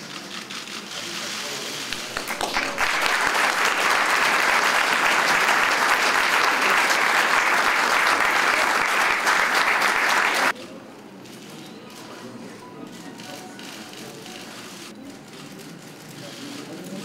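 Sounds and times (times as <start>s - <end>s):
audience applause: 1.9s - 10.6s.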